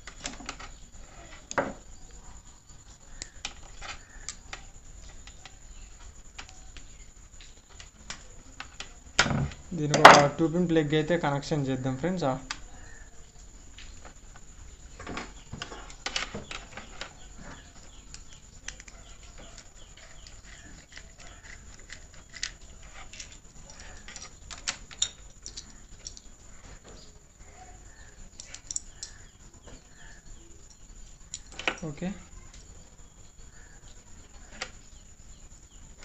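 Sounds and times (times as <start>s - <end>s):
faint low hum: 0.0s - 36.0s.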